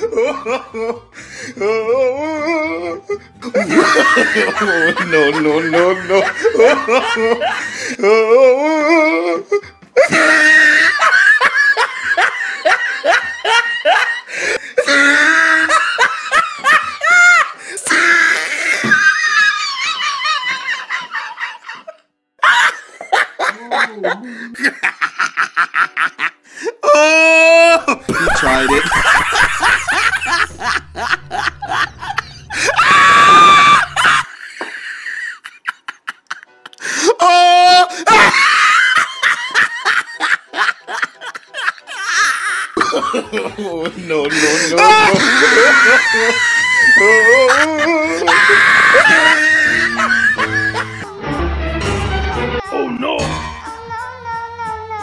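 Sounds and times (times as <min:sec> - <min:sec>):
laughter: 0:00.0 - 0:01.0, 0:03.4 - 0:07.8, 0:09.6 - 0:26.4, 0:27.8 - 0:36.8, 0:37.9 - 0:51.1
music: 0:00.0 - 0:55.0
rising squeaky sounds: 0:30.4 - 0:34.0
shrill scream: 0:32.5 - 0:34.3, 0:48.1 - 0:51.0.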